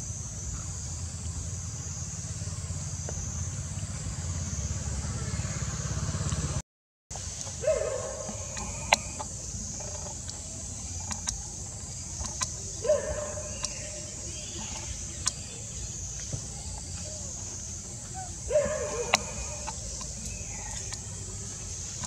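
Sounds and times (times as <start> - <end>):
steady high hiss: 0.0 - 6.2, 7.1 - 22.0
sharp clicks: 7.2 - 17.1, 18.5 - 22.0
short bending calls: 7.3 - 22.0.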